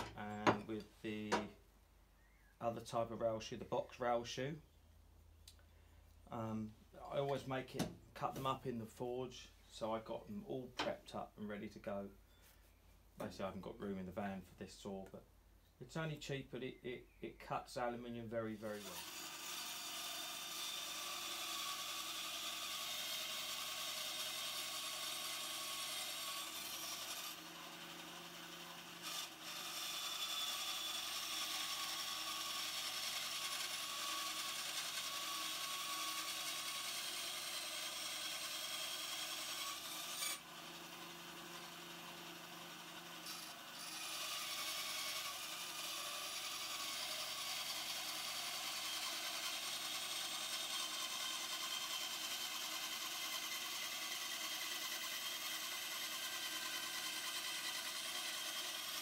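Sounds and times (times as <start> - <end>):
bandsaw cutting metal plate: 18.4 - 59.0
bandsaw motor hum: 18.8 - 59.0.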